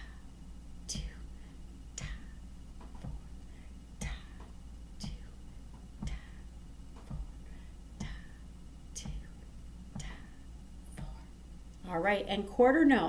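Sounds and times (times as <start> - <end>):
sharp clicks on a steady beat: 2.0 - 3.3, 4.0 - 8.4, 9.0 - 11.3
soft low thump: 2.8 - 3.3, 4.0 - 7.4, 8.0 - 8.4, 9.0 - 9.3, 9.9 - 10.3, 11.0 - 11.3.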